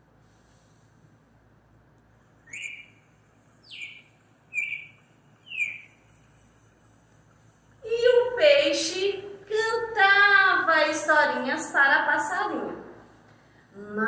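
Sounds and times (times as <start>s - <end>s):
short bird-like chirps: 2.4s - 6.8s.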